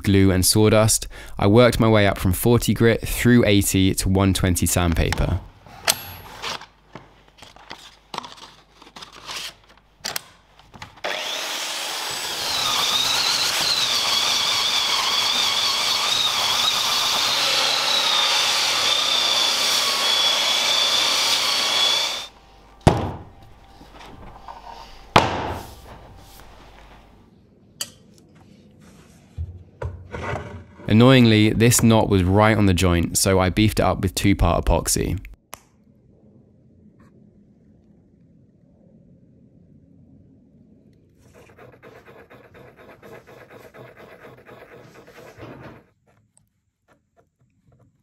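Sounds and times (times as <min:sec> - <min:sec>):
belt sander whining: 0:10.9 - 0:27.2
sharp knocks: 0:22.8 - 0:23.3, 0:25.1 - 0:25.6.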